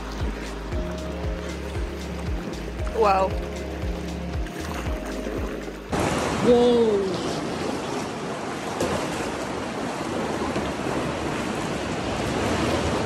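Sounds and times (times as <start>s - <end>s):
paddle splashing water: 0.0s - 13.0s
person exclaiming: 6.4s - 7.2s.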